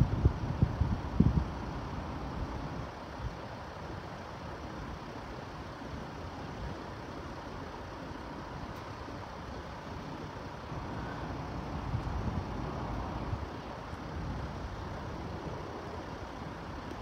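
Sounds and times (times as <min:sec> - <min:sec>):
wind rumble on microphone: 0:00.0 - 0:03.4, 0:10.7 - 0:17.0
road traffic with cars idling: 0:00.0 - 0:17.0.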